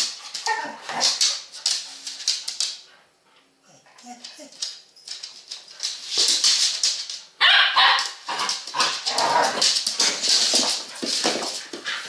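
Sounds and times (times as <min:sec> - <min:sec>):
dogs barking and yipping: 0:07.4 - 0:10.8.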